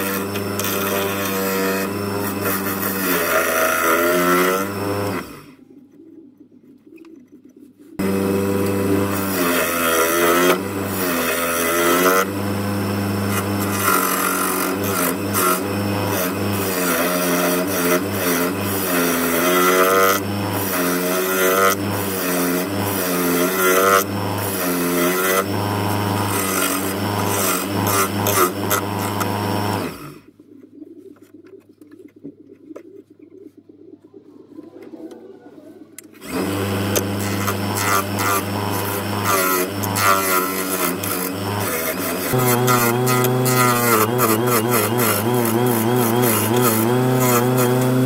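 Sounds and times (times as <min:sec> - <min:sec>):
gouge cutting spinning wood: 0:00.0 - 0:05.4, 0:08.0 - 0:30.2, 0:36.2 - 0:48.0
lathe motor hum: 0:08.0 - 0:30.1, 0:36.2 - 0:48.0.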